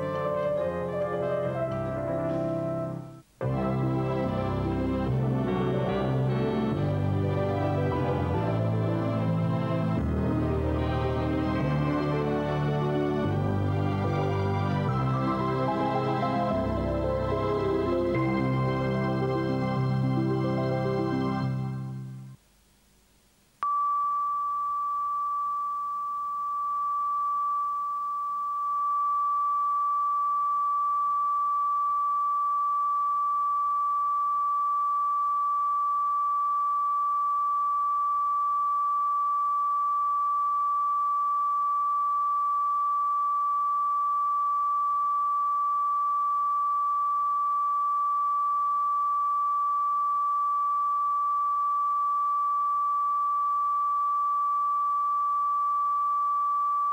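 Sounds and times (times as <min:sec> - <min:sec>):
steady test tone beep: 0:23.6 - 0:56.9.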